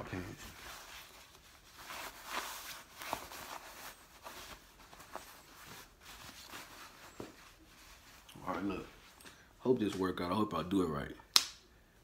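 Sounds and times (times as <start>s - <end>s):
clothing rustling: 0.0s - 10.4s.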